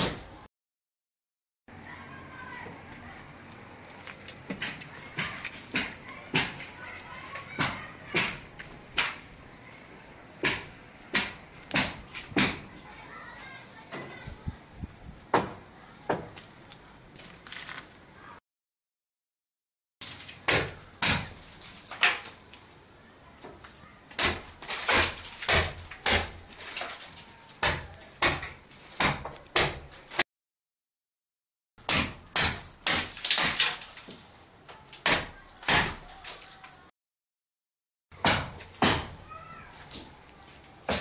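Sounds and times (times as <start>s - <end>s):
sharp knocks and bangs: 4.5s - 6.7s, 7.5s - 9.3s, 10.4s - 12.7s, 15.3s - 16.4s, 20.0s - 22.3s, 24.2s - 26.5s, 27.6s - 30.0s, 31.8s - 33.8s, 38.2s - 39.2s.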